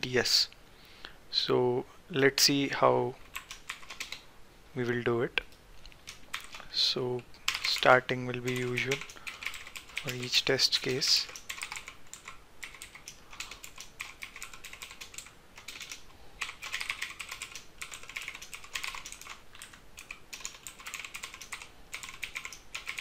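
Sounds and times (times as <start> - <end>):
typing on computer keyboard: 3.2 - 4.2, 6.0 - 6.6, 7.5 - 23.0.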